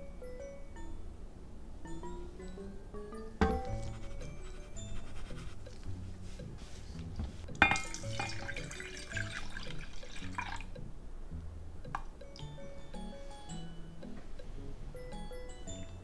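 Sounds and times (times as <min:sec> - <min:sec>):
liquid pouring into a saucepan: 0:07.7 - 0:10.7.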